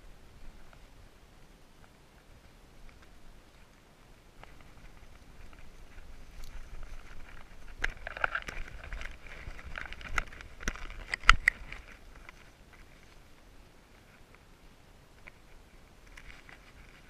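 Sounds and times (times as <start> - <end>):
leaves and branches rustling: 0.0 - 17.0.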